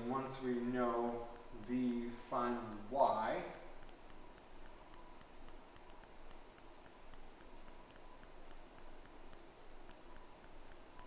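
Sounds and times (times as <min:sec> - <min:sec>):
faint steady hiss: 0:00.0 - 0:11.0
light rapid ticking: 0:00.0 - 0:11.0.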